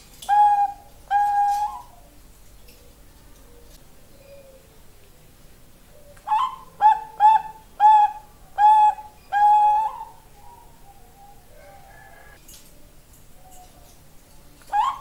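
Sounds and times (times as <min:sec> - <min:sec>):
dove cooing: 0:00.2 - 0:04.9, 0:05.9 - 0:12.4, 0:14.6 - 0:15.0.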